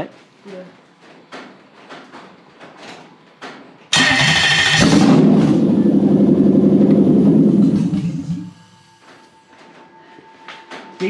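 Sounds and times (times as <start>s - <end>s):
starter motor cranking: 3.9s - 5.8s
engine running loud and steady: 4.0s - 8.6s.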